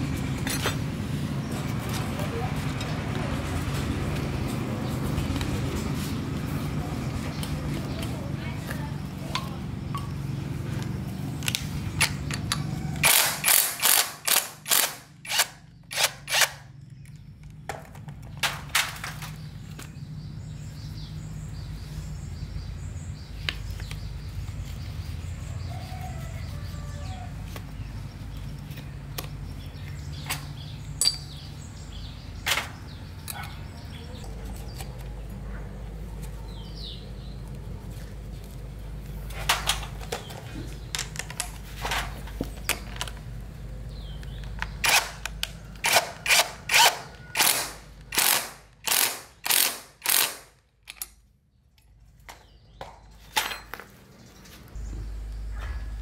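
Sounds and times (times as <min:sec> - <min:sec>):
metal parts clicking: 0:47.4 - 0:51.9.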